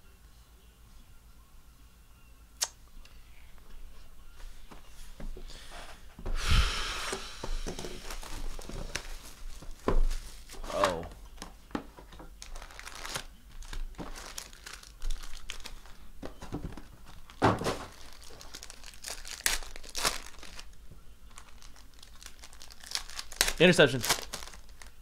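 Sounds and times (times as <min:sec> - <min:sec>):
foil wrappers crinkling and tearing: 0:08.0 - 0:11.5, 0:12.4 - 0:25.0.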